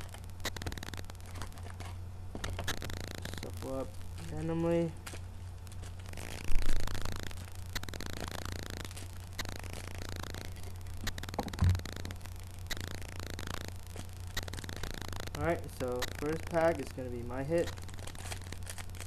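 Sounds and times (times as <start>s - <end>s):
foil wrappers rustling: 0.0s - 7.5s, 15.7s - 19.0s.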